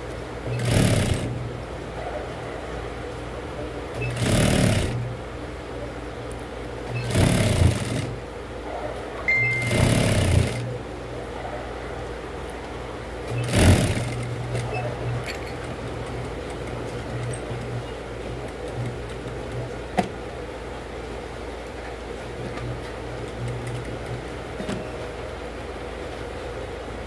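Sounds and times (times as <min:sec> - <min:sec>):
sewing machine stitching: 0:00.4 - 0:01.4, 0:03.9 - 0:05.1, 0:06.9 - 0:08.2, 0:09.5 - 0:10.7, 0:13.3 - 0:19.9
sewing machine motor humming: 0:00.4 - 0:01.6, 0:03.9 - 0:05.2, 0:06.8 - 0:08.4, 0:09.5 - 0:10.8, 0:13.2 - 0:20.0.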